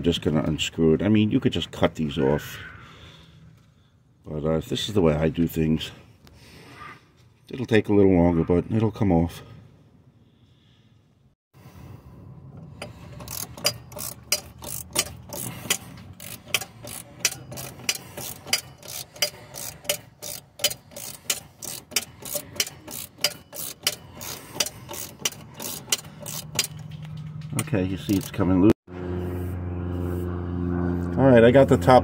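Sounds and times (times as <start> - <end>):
socket ratchet clicking: 12.7 - 27.2.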